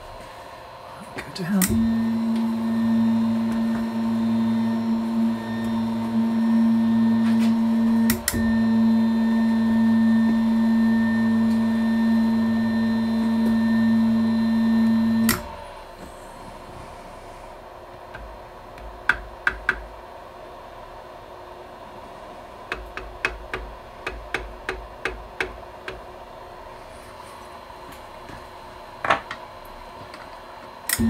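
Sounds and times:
motor humming: 1.0s - 17.5s
motor click: 15.2s - 15.5s.

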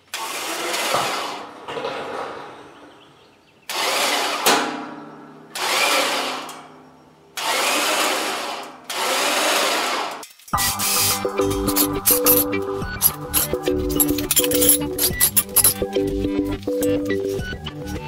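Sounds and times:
electric hoist motor: 0.0s - 1.6s, 3.7s - 4.7s, 5.5s - 6.8s, 7.4s - 12.4s.

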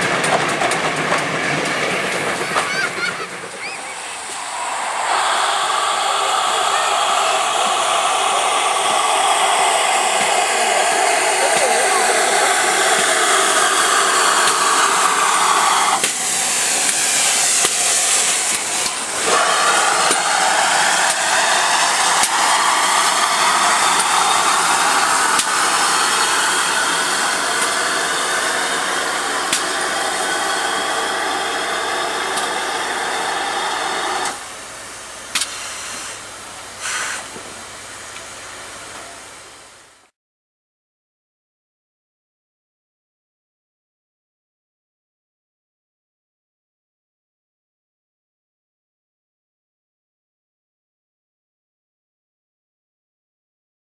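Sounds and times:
steam locomotive hissing steam: 0.0s - 40.1s.

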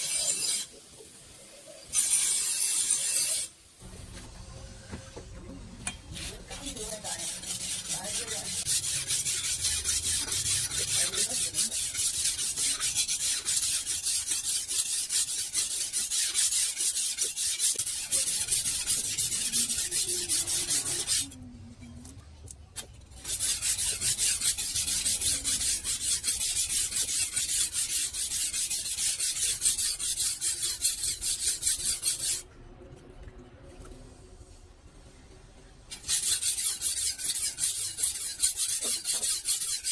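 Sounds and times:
blade scraping on whetstone: 0.0s - 0.8s, 1.9s - 3.5s, 6.1s - 21.4s, 23.2s - 32.4s, 35.9s - 39.9s.

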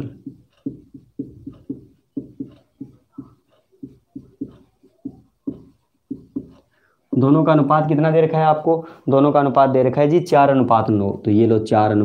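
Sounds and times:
marker writing on whiteboard: 0.0s - 7.7s.

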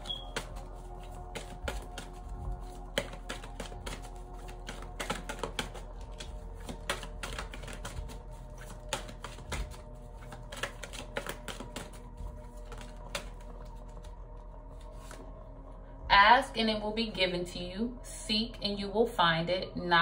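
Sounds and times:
cards being shuffled: 0.0s - 15.3s
soft background music: 0.0s - 20.0s.

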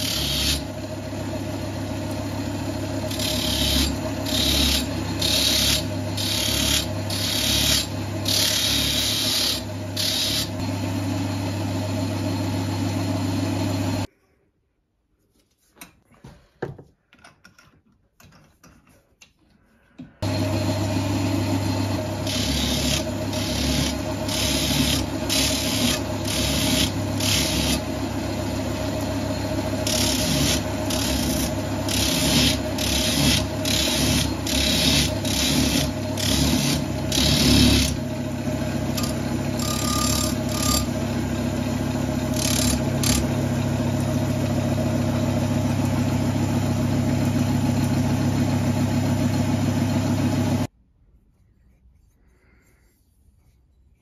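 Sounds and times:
axe head grinding on wheel: 0.0s - 0.8s, 2.9s - 10.6s, 22.0s - 44.1s
lathe motor running: 0.0s - 14.1s, 20.2s - 50.7s.

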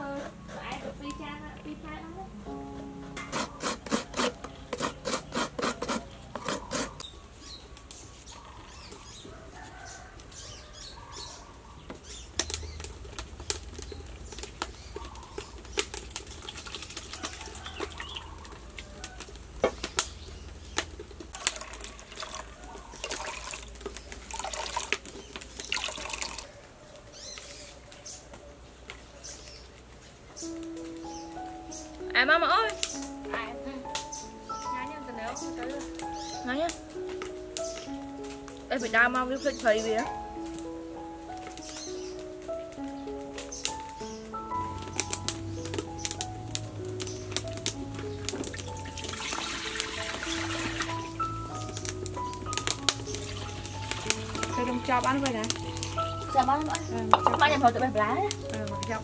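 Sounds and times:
hands squishing grated coconut: 3.2s - 7.1s
water splashing: 12.5s - 19.0s, 19.8s - 26.5s, 44.7s - 59.0s
metal bowls clinking: 52.6s - 59.0s.

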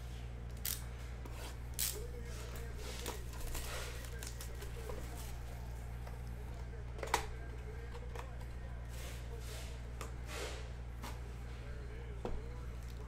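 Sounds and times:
steady low hum: 0.0s - 13.0s
cellophane tearing and crinkling: 3.0s - 5.4s.

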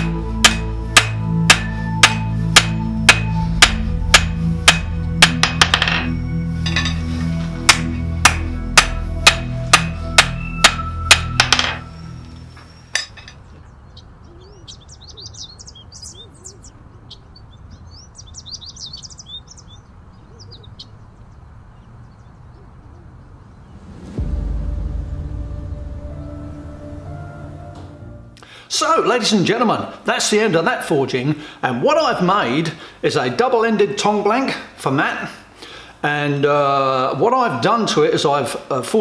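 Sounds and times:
hammer striking steel on anvil: 0.0s - 12.0s, 12.6s - 13.4s
music: 0.0s - 13.2s, 23.8s - 28.6s
birds chirping: 0.0s - 24.2s.

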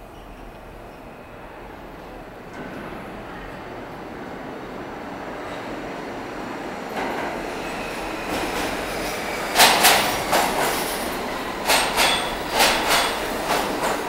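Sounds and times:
subway train rumble: 0.0s - 14.0s
wheels clacking over rail joints: 8.3s - 14.0s.

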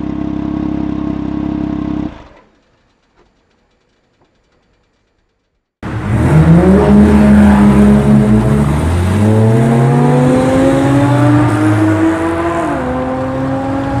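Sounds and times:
car engine accelerating: 5.8s - 14.0s.

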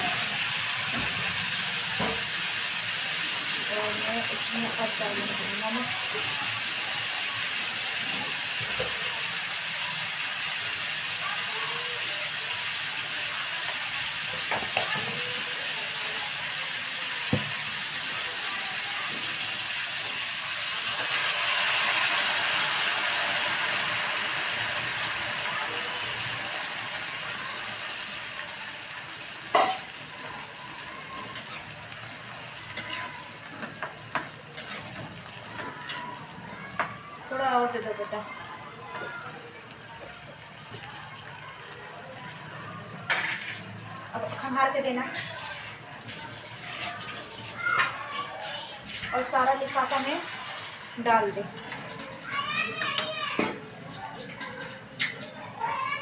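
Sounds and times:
onions sizzling in oil: 0.0s - 56.0s
metal spoon clinking on pan: 29.5s - 29.9s.

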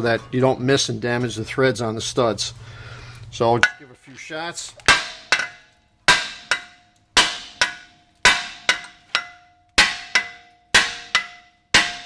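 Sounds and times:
hammer striking metal rotor: 4.9s - 12.0s.

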